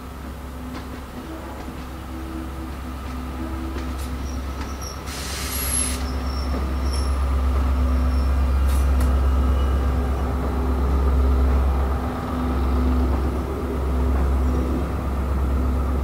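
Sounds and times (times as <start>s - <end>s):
locomotive diesel engine hum: 0.0s - 16.0s.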